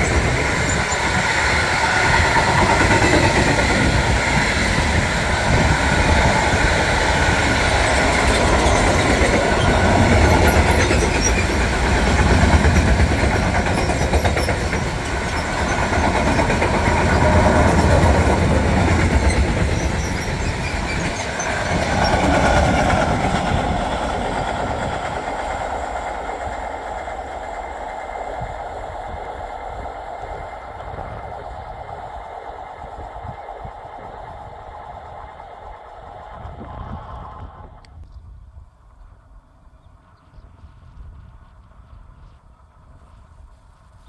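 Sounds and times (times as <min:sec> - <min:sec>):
freight train rolling past: 0:00.0 - 0:38.0.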